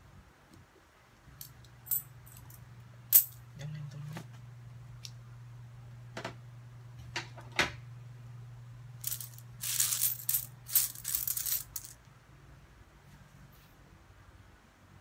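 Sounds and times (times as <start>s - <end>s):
coins rattling and clinking: 1.4s - 3.4s, 9.0s - 12.0s.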